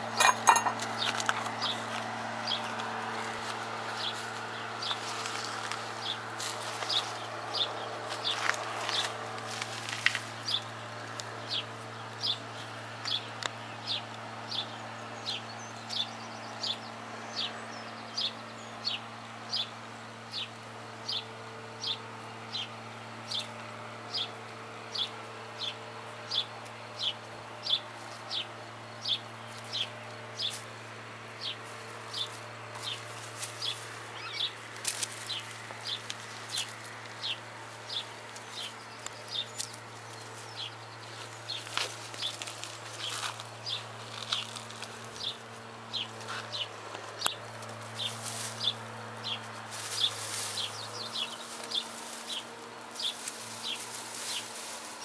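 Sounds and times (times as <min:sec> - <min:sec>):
small bird calling: 0:31.4 - 0:55.0.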